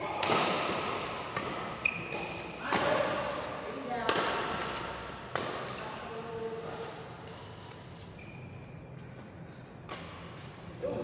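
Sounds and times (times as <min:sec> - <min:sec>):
racket striking shuttlecock: 0:00.1 - 0:03.3, 0:04.0 - 0:05.8.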